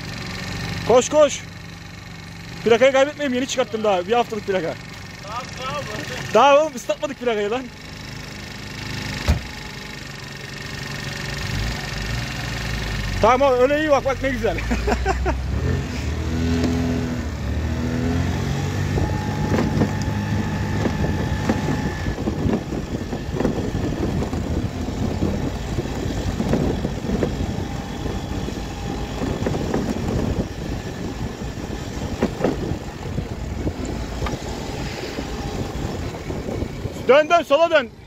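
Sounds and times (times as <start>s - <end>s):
car engine pulling away: 0.0s - 37.3s
small scooter engine: 0.0s - 38.0s
wind noise: 17.7s - 38.0s.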